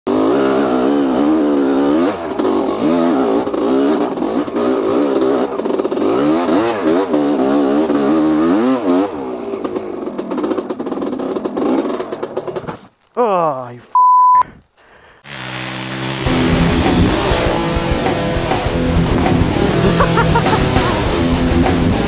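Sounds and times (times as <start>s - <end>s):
motocross bike engine revving: 0.1s - 12.4s, 15.2s - 22.0s
engine clattering: 15.4s - 22.0s.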